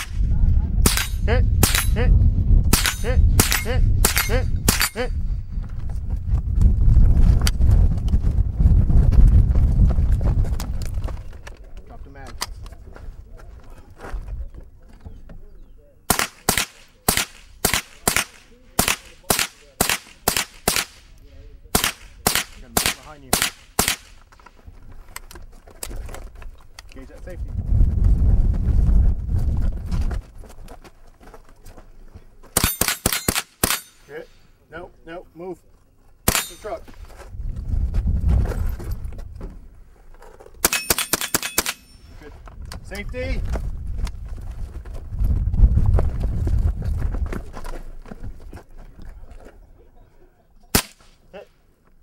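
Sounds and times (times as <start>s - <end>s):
low rumbling microphone noise: 0.0s - 16.0s, 26.2s - 30.7s, 36.8s - 40.2s, 42.2s - 50.2s
metallic ring of steel targets: 0.8s - 2.0s, 2.7s - 5.2s, 32.6s - 34.3s, 36.3s - 36.9s, 40.6s - 42.2s
rifle shots cracking: 0.8s - 2.0s, 2.7s - 5.0s, 16.1s - 24.2s, 32.6s - 34.2s, 36.3s - 36.8s, 40.6s - 42.0s, 50.7s - 51.2s
rapid gunshots: 16.1s - 21.1s, 21.7s - 24.2s.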